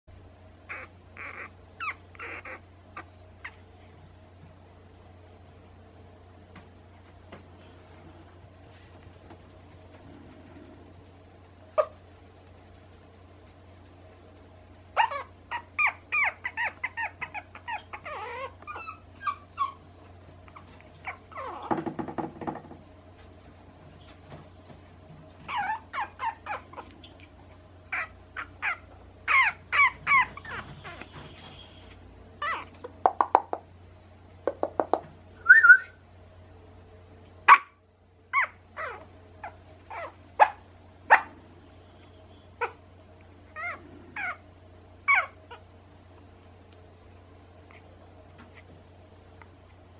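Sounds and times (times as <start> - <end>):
puppy squeaking and whimpering: 0.6 - 3.7, 11.8 - 12.0, 14.9 - 21.9, 25.4 - 33.6, 37.5 - 41.3, 42.6 - 42.8, 43.4 - 45.7, 47.6 - 48.7.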